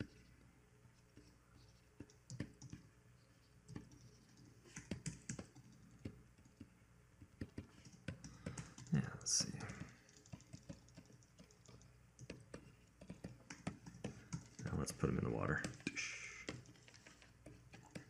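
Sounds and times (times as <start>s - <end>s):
computer keyboard clicks: 2.0s - 2.9s, 3.7s - 6.7s, 7.4s - 15.0s, 15.6s - 18.0s.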